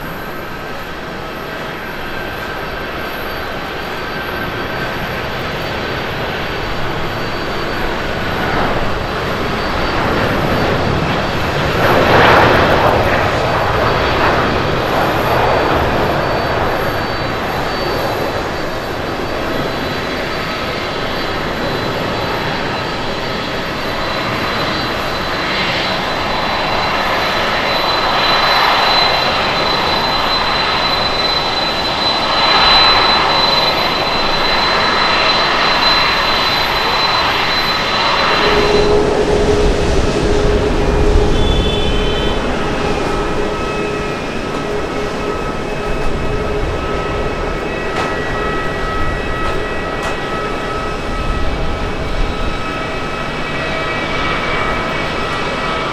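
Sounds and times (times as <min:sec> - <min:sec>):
jet engines roaring: 0:00.0 - 0:55.9
thin high whine: 0:00.0 - 0:55.9.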